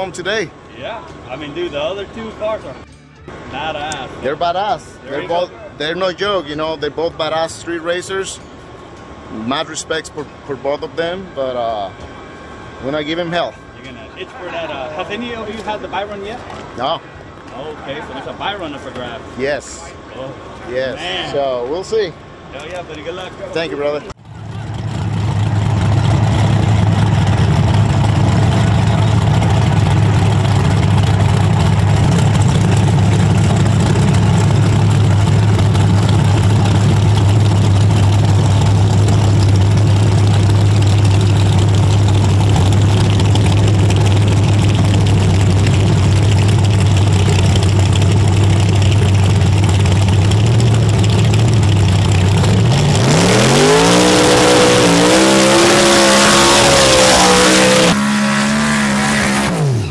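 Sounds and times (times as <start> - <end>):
race car engines revving: 24.2 - 59.9.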